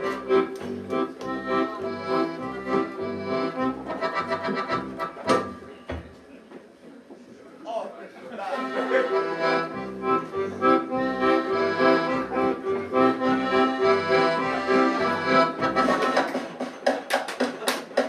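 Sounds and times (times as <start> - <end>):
plucked double bass: 0.0 - 5.6, 9.7 - 16.2
accordion playing chords: 0.0 - 5.7, 8.6 - 16.6.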